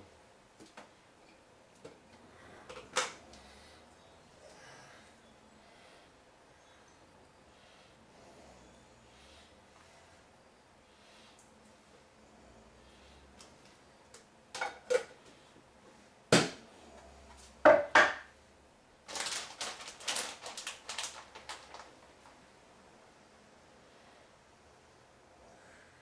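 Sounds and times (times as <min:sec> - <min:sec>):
food containers knocking: 0:17.6 - 0:18.3.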